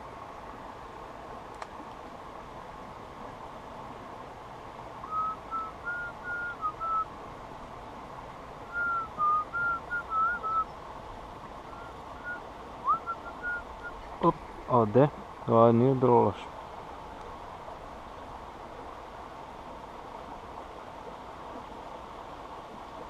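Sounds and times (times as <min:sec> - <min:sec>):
whistled notes: 0:05.1 - 0:07.0, 0:08.7 - 0:10.7, 0:11.7 - 0:14.0.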